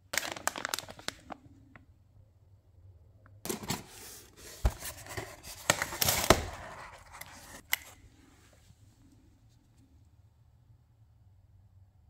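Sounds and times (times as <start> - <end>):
plastic wrapping crinkling: 0.1 - 1.4.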